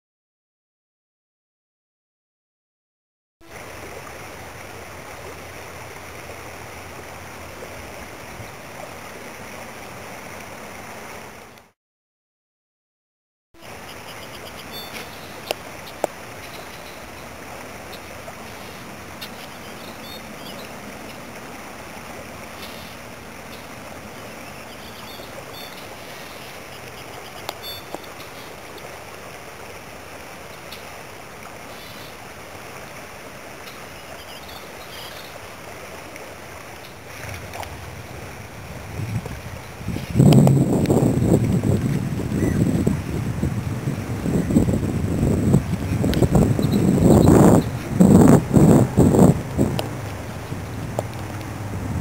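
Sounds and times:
creek water flowing: 0:03.4 - 0:11.8, 0:13.6 - 0:52.0
wind buffeting microphone: 0:37.2 - 0:52.0.

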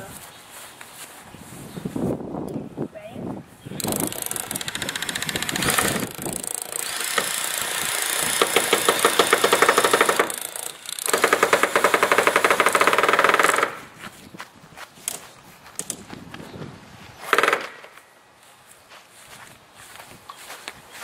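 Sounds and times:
power drill driving screws: 0:03.8 - 0:13.8.

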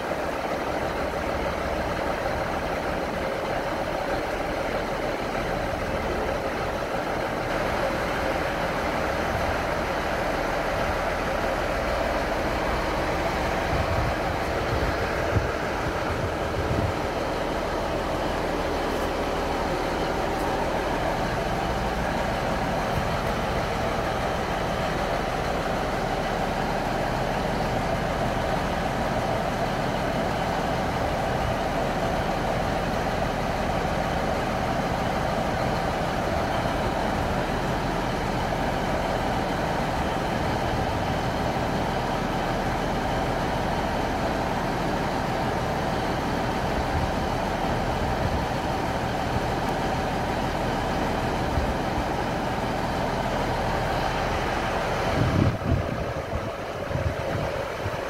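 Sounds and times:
train mechanical hum: 0:00.0 - 0:58.0.

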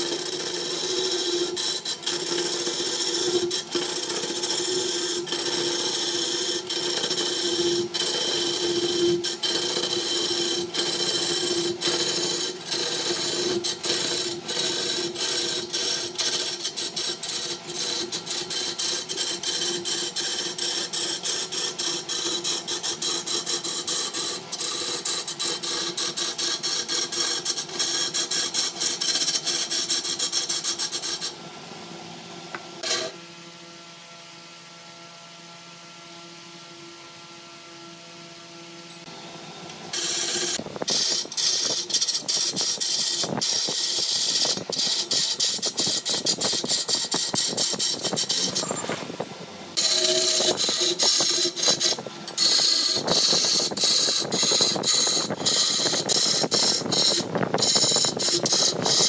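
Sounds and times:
lathe motor hum: 0:00.0 - 0:29.2, 0:39.1 - 0:59.0
wood lathe tool scraping wood: 0:00.0 - 0:31.4, 0:32.8 - 0:33.2, 0:39.9 - 0:59.0.

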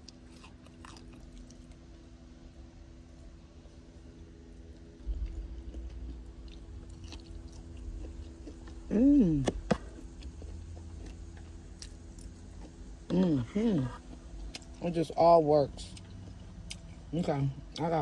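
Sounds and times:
person chewing food: 0:00.0 - 0:02.2, 0:04.4 - 0:18.0
pleased mmm hum: 0:08.5 - 0:10.2, 0:12.9 - 0:14.1.

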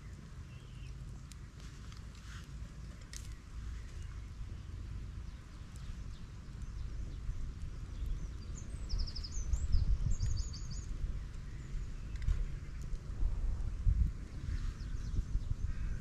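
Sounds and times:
songbird chirping and trilling: 0:00.0 - 0:01.6, 0:02.8 - 0:12.8
wind rumbling on microphone: 0:00.0 - 0:16.0.

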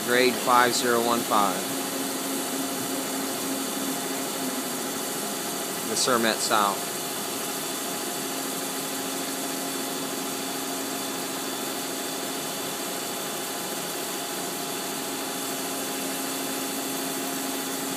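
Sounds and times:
boring mill machine hum: 0:00.0 - 0:17.9.

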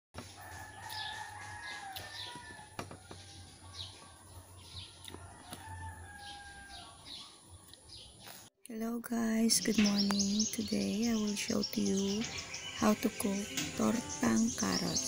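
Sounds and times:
rooster crowing: 0:00.2 - 0:07.2
small birds chirping: 0:00.2 - 0:15.0.

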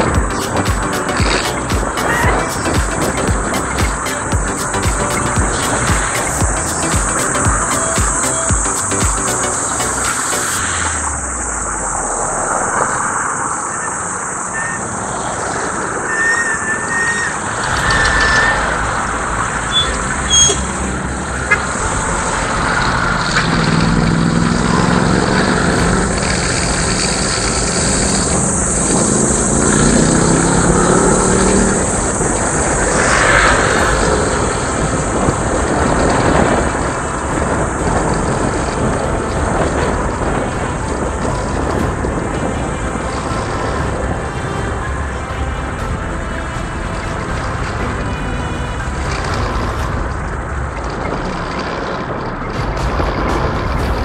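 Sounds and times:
motorcycle engine running: 0:00.0 - 0:10.5, 0:19.7 - 0:46.4
wind and road rush: 0:00.0 - 0:54.0.

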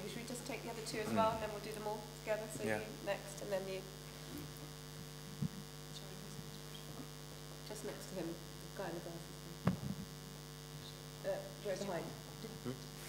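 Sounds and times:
electrical mains hum: 0:00.0 - 0:13.0
soft knocks: 0:09.6 - 0:10.0.

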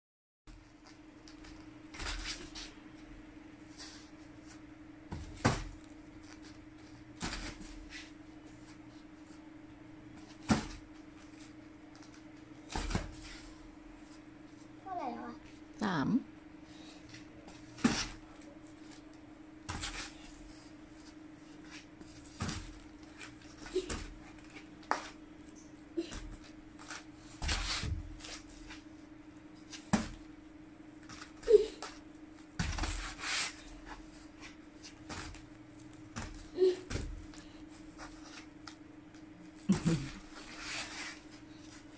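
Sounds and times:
steady low hum: 0:00.5 - 0:41.9
body thudding on foam mat: 0:05.1 - 0:05.9, 0:10.2 - 0:10.9, 0:12.7 - 0:13.2, 0:32.6 - 0:33.5.

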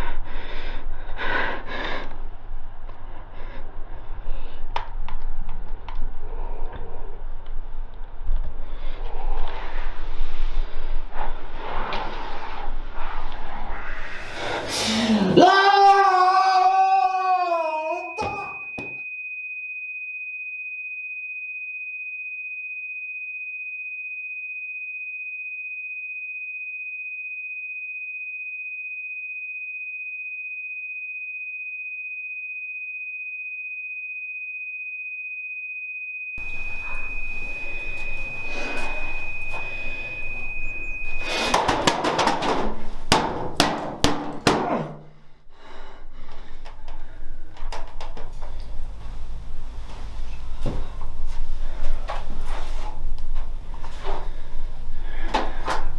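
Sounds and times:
high-pitched electronic tone: 0:36.4 - 0:41.8
knocks and clatter: 0:41.5 - 0:44.7.

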